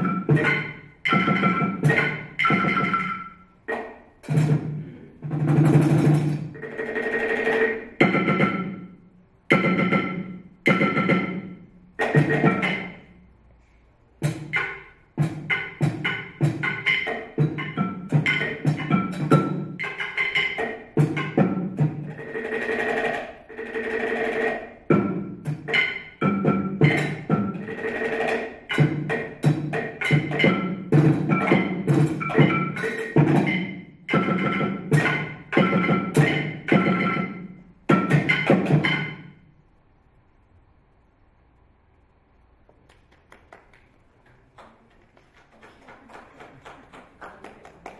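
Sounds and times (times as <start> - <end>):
wooden mallets striking objects: 0.0 - 4.8, 5.8 - 13.2, 14.2 - 39.4.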